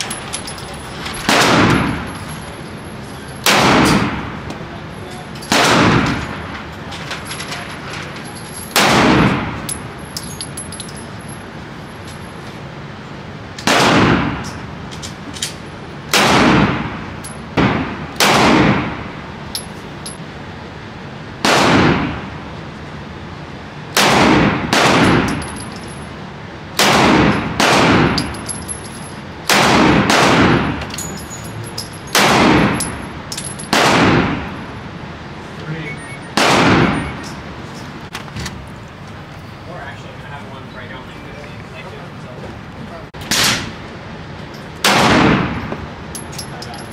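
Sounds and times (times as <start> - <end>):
gunshots with echo: 1.3 - 2.1, 5.5 - 6.2, 13.7 - 14.4, 21.4 - 22.3, 24.0 - 25.4, 26.8 - 28.2, 29.5 - 30.8, 32.2 - 32.8, 36.4 - 37.2, 44.8 - 45.6
faint metallic clicks and clinks: 9.7 - 12.6, 19.5 - 20.2, 25.3 - 26.1, 30.9 - 32.2, 32.8 - 33.7, 46.1 - 46.9.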